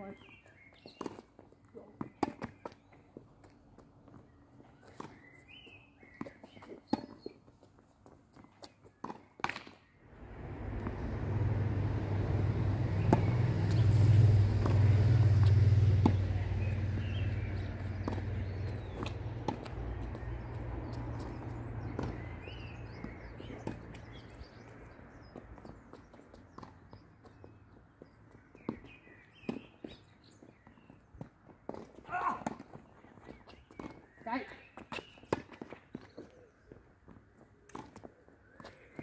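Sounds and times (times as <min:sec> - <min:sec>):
tennis balls struck by rackets: 0:09.0 - 0:24.6
vehicle engine rumble passing: 0:10.1 - 0:25.9.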